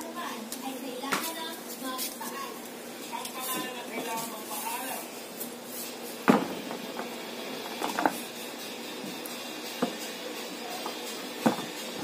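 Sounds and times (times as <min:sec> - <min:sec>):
faint background hum: 0:00.0 - 0:12.0
tools knocking on wooden workbench: 0:06.3 - 0:07.1, 0:09.8 - 0:10.0, 0:11.4 - 0:11.8.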